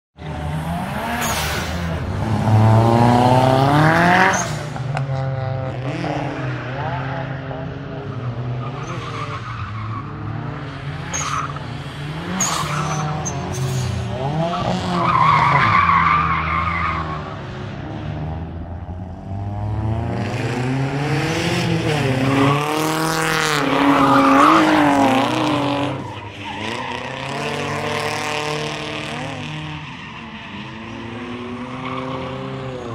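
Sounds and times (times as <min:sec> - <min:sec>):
car engine revving: 0:00.2 - 0:32.9
tyre squeal: 0:04.2 - 0:04.7, 0:08.6 - 0:10.1, 0:12.3 - 0:14.2.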